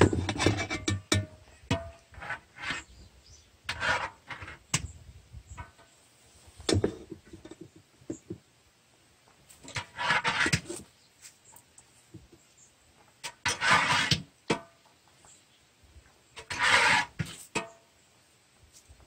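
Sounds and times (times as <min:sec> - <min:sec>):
metal strainer scraping a cauldron: 0:09.7 - 0:10.8, 0:13.4 - 0:14.2, 0:16.4 - 0:17.7.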